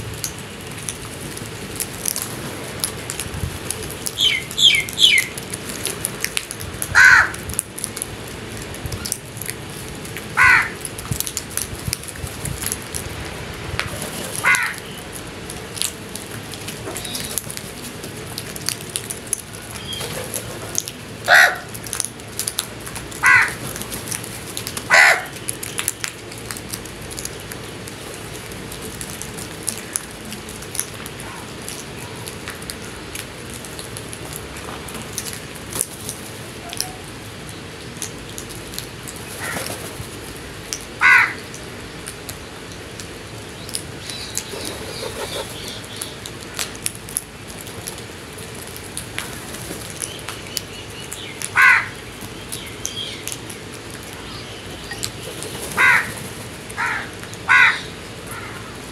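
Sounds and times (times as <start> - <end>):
crows cawing: 7.0 - 7.4, 10.4 - 10.8, 14.4 - 14.9, 21.3 - 21.7, 23.2 - 23.6, 24.9 - 25.3, 41.0 - 41.5, 51.5 - 52.0, 55.8 - 56.2, 56.8 - 58.7.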